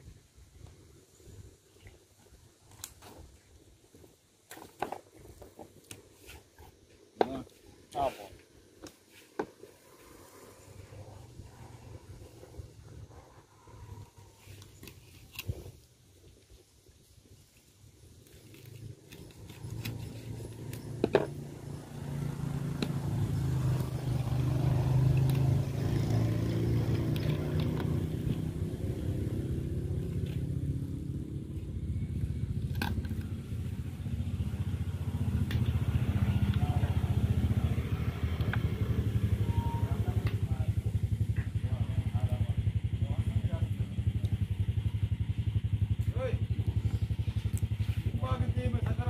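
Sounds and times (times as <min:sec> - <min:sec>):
engine throbbing: 0:18.7 - 0:49.0.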